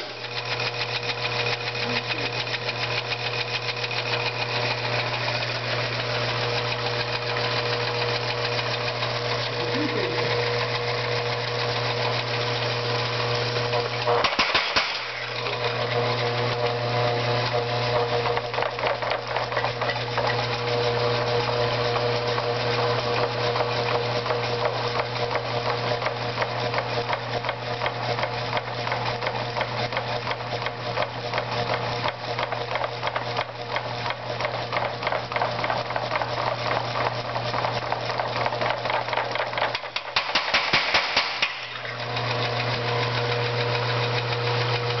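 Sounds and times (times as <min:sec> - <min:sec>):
electric motor humming: 0:00.0 - 0:45.0
power hammer ram clattering: 0:13.8 - 0:16.0, 0:34.1 - 0:42.0.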